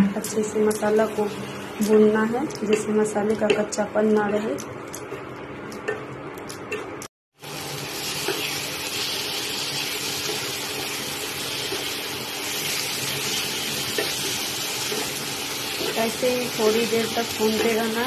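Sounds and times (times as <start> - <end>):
food sizzling in a pan: 7.4 - 18.0.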